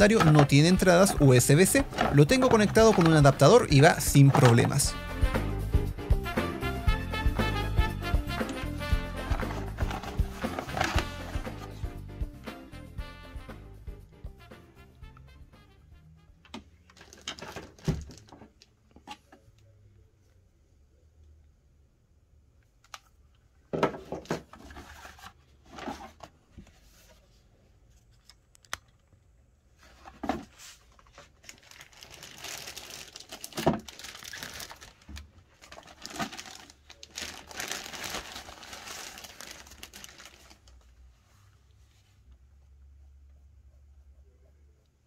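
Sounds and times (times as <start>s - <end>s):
packaging crinkling and rustling: 0.0s - 4.9s, 9.2s - 11.7s, 16.9s - 18.6s, 30.0s - 40.9s.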